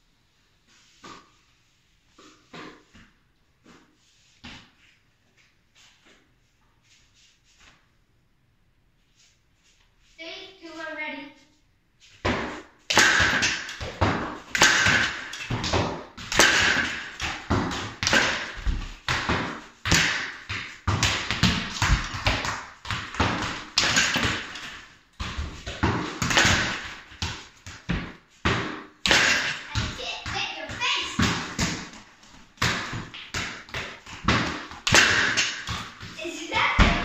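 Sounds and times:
balls bouncing on wooden floor: 2.2s - 5.4s, 12.2s - 37.0s
balls thudding on rebounder net: 12.2s - 37.0s.

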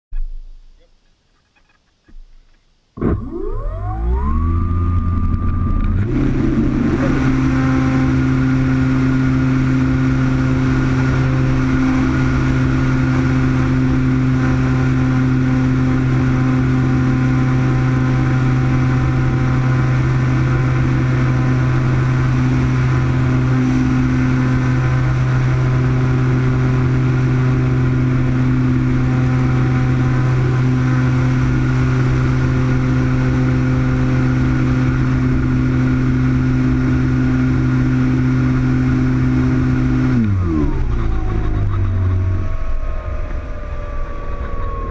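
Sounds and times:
electric motor whining: 3.0s - 44.9s.

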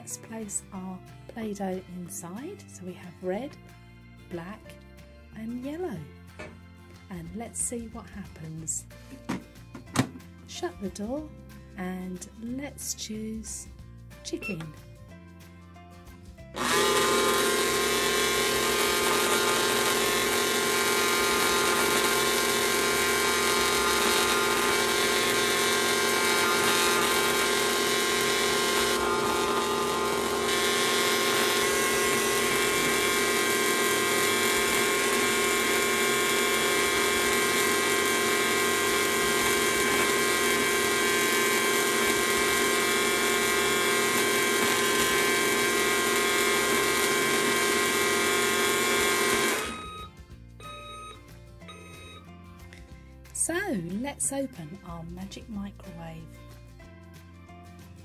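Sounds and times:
toy microwave buzzing hum: 16.6s - 52.3s.

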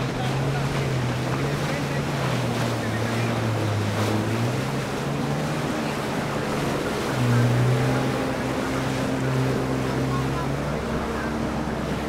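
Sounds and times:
jet ski engine drone: 0.0s - 12.0s
spray and wake rushing: 0.0s - 12.0s.

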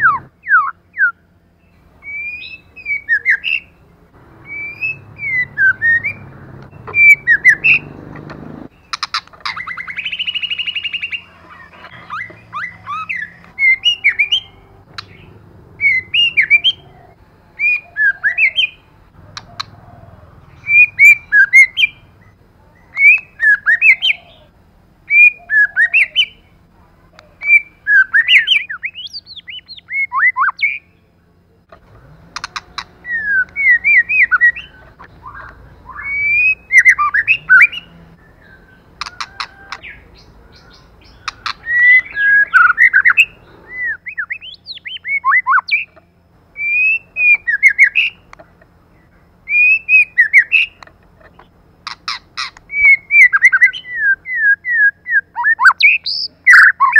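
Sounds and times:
bird singing whistled phrases: 0.0s - 1.2s, 2.0s - 3.7s, 4.4s - 7.9s, 8.9s - 11.3s, 11.9s - 18.8s, 20.5s - 22.0s, 22.8s - 24.4s, 25.1s - 26.4s, 27.3s - 31.0s, 32.8s - 40.0s, 40.6s - 45.9s, 46.6s - 48.2s, 49.5s - 50.8s, 51.9s - 56.9s
sharp bird clicks: 4.5s - 11.2s, 14.9s - 15.3s, 19.3s - 19.8s, 23.0s - 24.1s, 31.7s - 37.8s, 40.6s - 43.3s, 46.7s - 48.6s, 49.5s - 53.8s.

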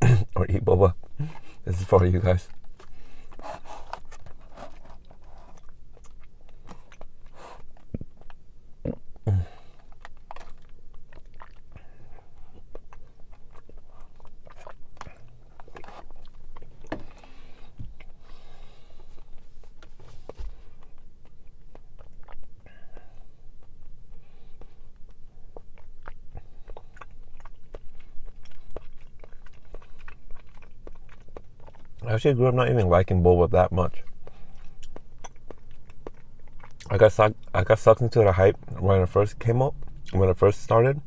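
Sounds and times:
wet mouth clicks and smacks: 34.1s - 36.9s.

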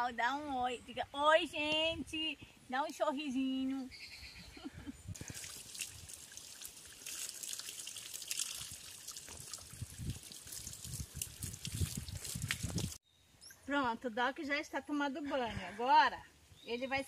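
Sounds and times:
hose water splashing: 5.2s - 13.0s.

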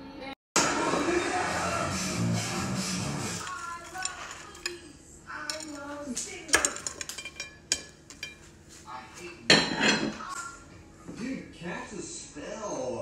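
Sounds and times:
cutlery clinking on dishes: 3.4s - 8.5s, 9.5s - 10.4s.

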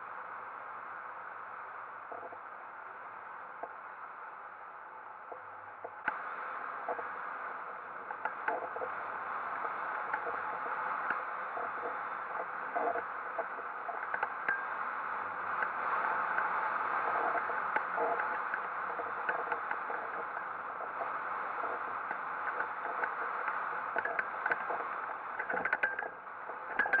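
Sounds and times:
wind rushing over camera: 6.0s - 27.0s.

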